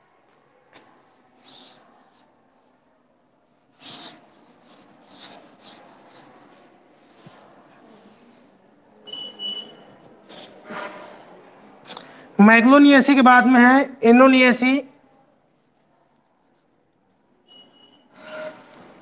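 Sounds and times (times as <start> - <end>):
chalk scraping on a blackboard: 3.6 - 8.5, 10.3 - 11.3, 18.1 - 19.0
chalk squeak: 17.5 - 19.0.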